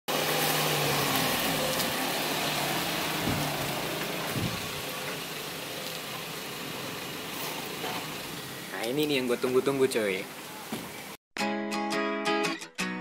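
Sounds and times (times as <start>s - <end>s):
pickup truck driving past: 0.1s - 8.7s
road hiss: 0.1s - 11.2s
low thumps: 3.0s - 4.9s.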